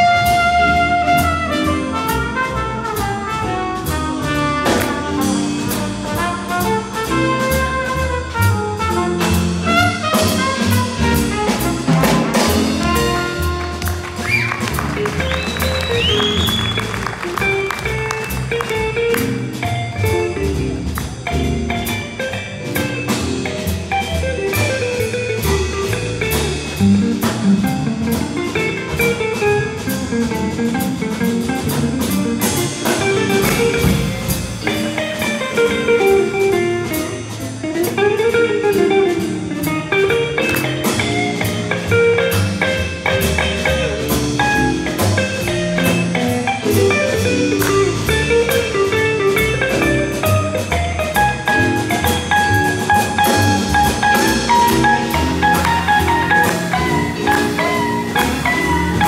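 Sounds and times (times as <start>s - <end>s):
cymbals keeping beat: 0.0s - 38.4s, 39.0s - 59.0s
live big band jazz: 0.0s - 59.0s
electric guitar: 12.6s - 59.0s.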